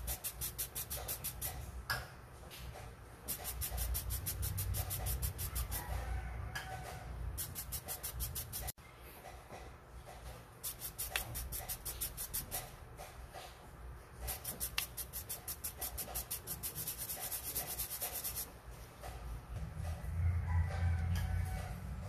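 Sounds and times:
coin scrubbed on wire brush: 0.0s - 1.6s, 3.3s - 6.0s, 7.4s - 8.7s, 10.6s - 12.7s, 14.2s - 18.5s.

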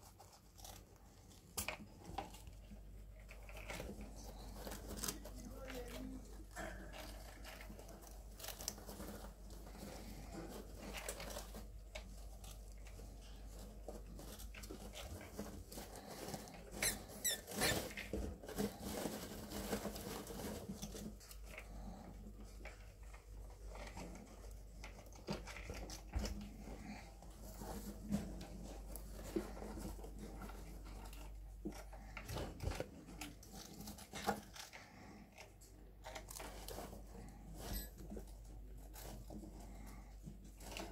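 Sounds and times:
rats rustling in bedding: 0.0s - 40.9s
high-pitched rat squeaks: 16.7s - 17.8s.

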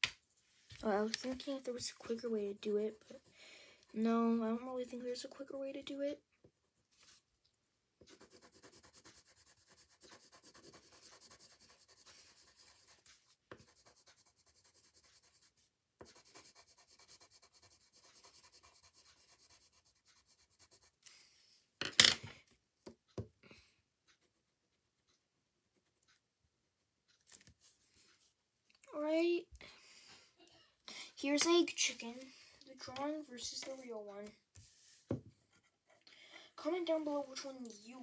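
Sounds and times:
pencil crayon scratching on paper: 1.2s - 5.0s, 8.0s - 21.1s.

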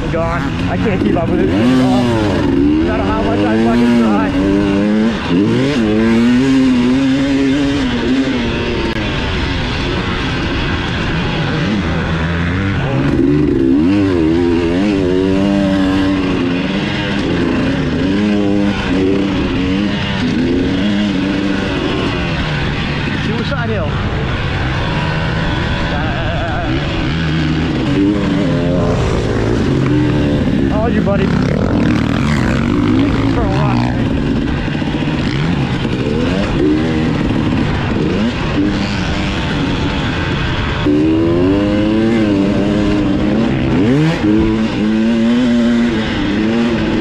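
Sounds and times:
dirt bike engine revving: 0.0s - 47.0s
steady rushing noise: 0.0s - 47.0s.

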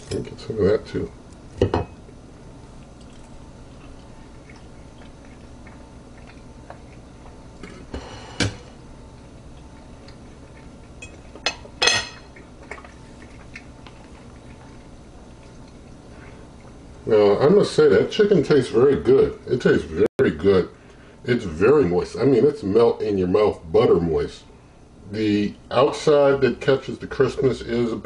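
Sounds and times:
low background hum: 0.0s - 28.0s
cutlery clinking on a plate: 11.0s - 12.3s.

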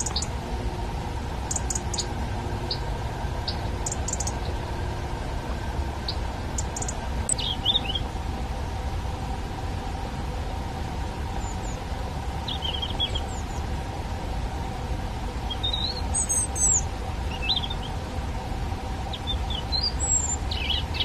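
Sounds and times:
robin singing: 0.0s - 0.5s, 1.4s - 5.0s, 6.0s - 8.1s, 11.3s - 13.7s, 15.4s - 18.0s, 19.0s - 21.0s
low background hum: 0.0s - 21.0s.

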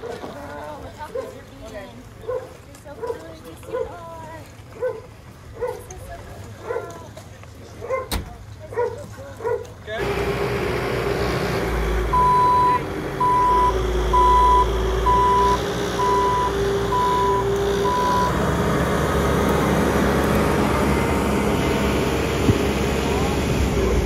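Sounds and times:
diesel engine running: 9.9s - 24.0s
backup alarm beeping: 12.1s - 18.4s.

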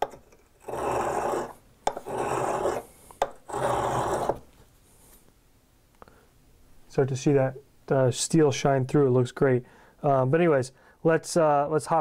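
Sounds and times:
steel rasping on sharpening stone: 0.6s - 4.4s.

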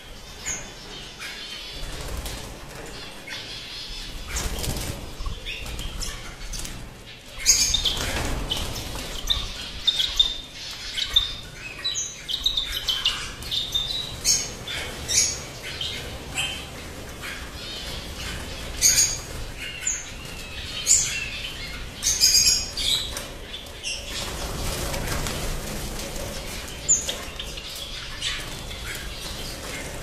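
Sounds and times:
cage birds chirping: 0.0s - 30.0s
wings fluttering: 24.1s - 27.4s.

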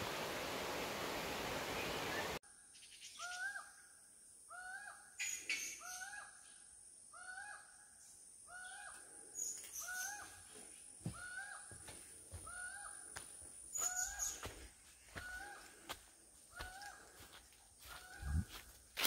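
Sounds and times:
steady rushing hiss: 0.0s - 2.4s
bird calling: 4.5s - 15.8s.

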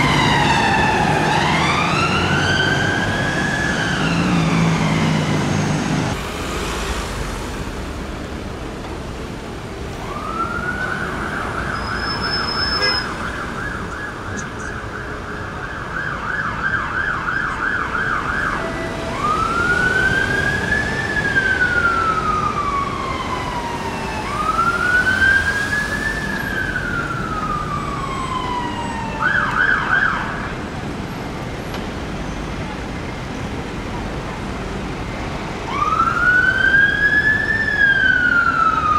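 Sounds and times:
fire engine siren yelping and wailing: 0.0s - 6.2s, 10.0s - 30.6s, 35.6s - 38.9s
city traffic: 0.0s - 38.9s.

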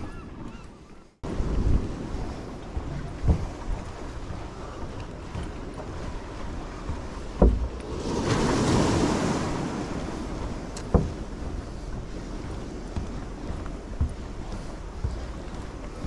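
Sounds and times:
ocean waves breaking: 0.0s - 16.0s
wind on microphone: 0.0s - 16.0s
short low thumps: 1.2s - 8.0s, 10.0s - 16.0s.

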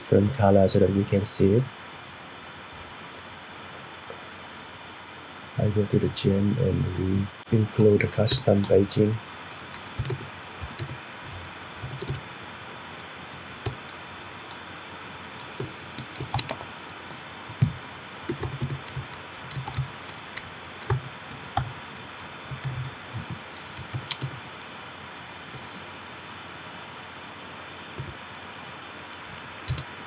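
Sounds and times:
steady background hiss: 0.0s - 30.0s
keyboard typing: 8.0s - 12.2s, 15.2s - 16.9s, 18.2s - 24.6s, 29.1s - 29.9s.

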